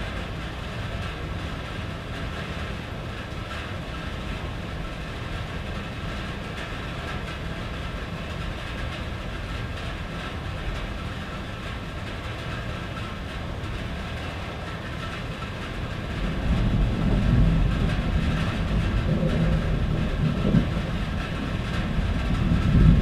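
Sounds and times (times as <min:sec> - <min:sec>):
rain on a tin roof: 0:00.0 - 0:23.0
low rumble: 0:16.0 - 0:23.0.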